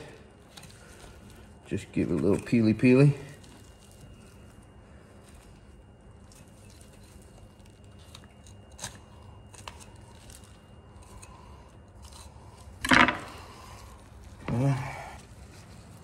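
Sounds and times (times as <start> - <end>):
wet meat tearing: 0.0 - 16.0.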